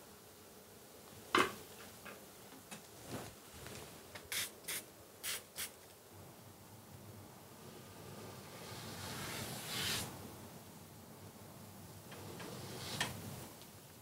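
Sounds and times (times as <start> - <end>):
spray bottle spritzes: 4.3 - 5.8.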